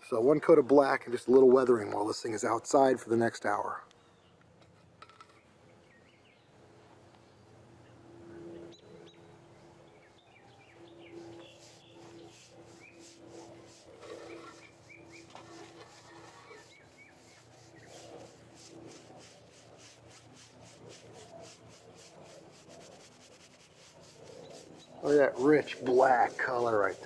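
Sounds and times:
birds chirping: 5.2 - 18.5, 24.2 - 27.0
paintbrush scrubbing wood: 10.9 - 27.0.

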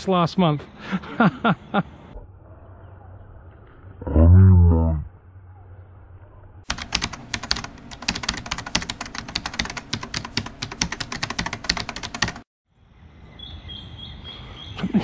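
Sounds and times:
keyboard typing clicks: 6.7 - 12.4.

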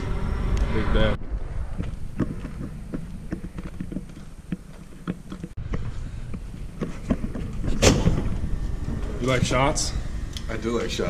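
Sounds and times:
door clunking open: 6.9 - 9.2.

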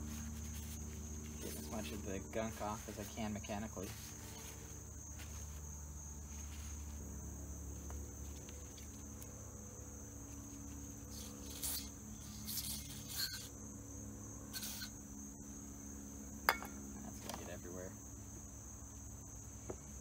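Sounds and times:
paper towels rustling: 0.0 - 7.0
insects trilling: 0.0 - 20.0.

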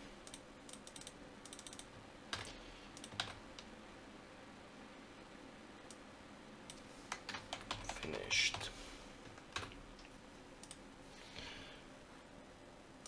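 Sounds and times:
faint keyboard typing: 0.2 - 3.7, 6.6 - 10.8.

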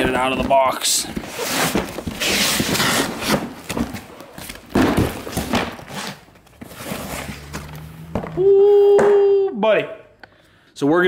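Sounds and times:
cardboard boxes thumping on concrete: 0.0 - 8.4
cardboard scraping and rustling: 0.0 - 8.4.

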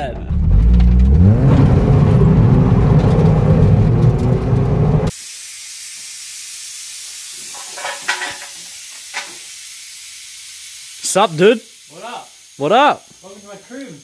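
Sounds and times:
car engine revving hard: 0.3 - 5.1
steady hiss: 5.1 - 14.0.

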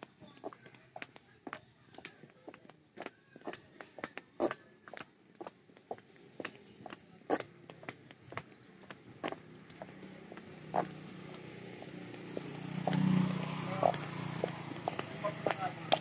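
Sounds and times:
footsteps on concrete: 0.0 - 16.0
vehicle engine passing: 9.2 - 16.0.

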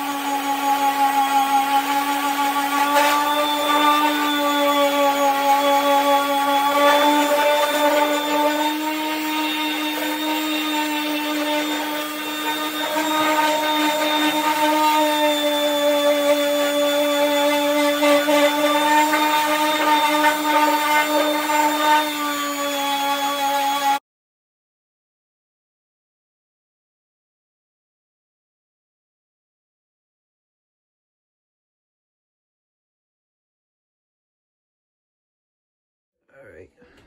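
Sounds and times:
orbital sander whining: 0.0 - 24.0.

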